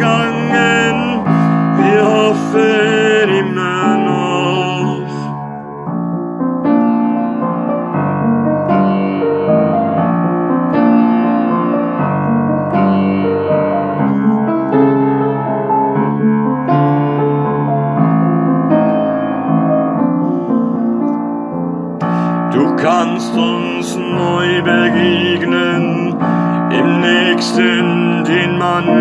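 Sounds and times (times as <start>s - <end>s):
person singing: 0.0s - 5.7s, 22.0s - 29.0s
piano chords: 0.0s - 29.0s.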